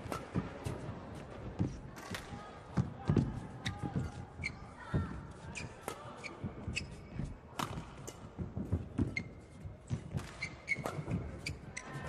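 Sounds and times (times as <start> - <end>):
shoes squeaking: 5.4 - 7.3, 9.0 - 12.0.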